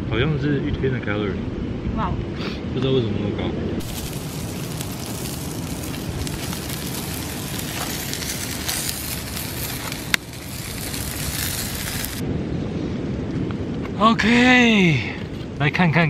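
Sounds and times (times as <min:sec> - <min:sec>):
meat sizzling on grill: 0:03.8 - 0:12.2.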